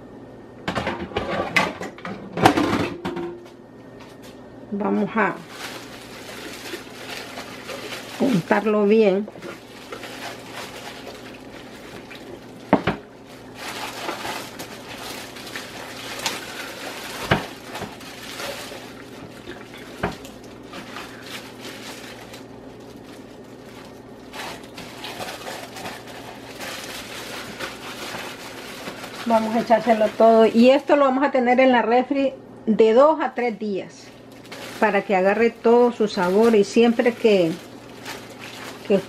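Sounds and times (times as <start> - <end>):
plastic bag crinkling: 5.2 - 31.4, 34.0 - 39.0
wet marinade squelching: 9.3 - 30.9, 36.0 - 39.0.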